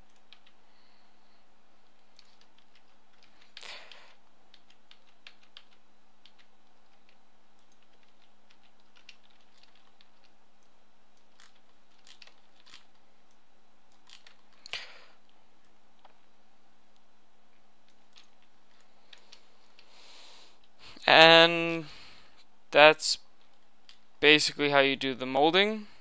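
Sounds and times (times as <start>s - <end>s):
faint steady hum: 0.0s - 26.0s
keyboard and mouse clicks: 1.9s - 14.9s, 17.8s - 19.9s.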